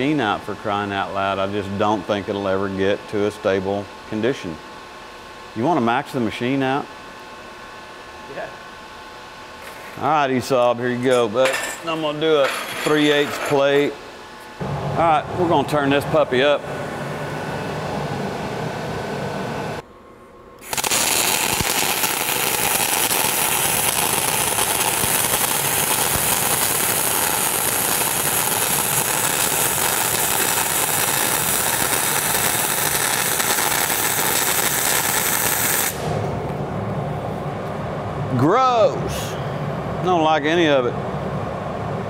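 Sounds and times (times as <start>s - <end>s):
welding arc crackling: 20.6s - 36.2s.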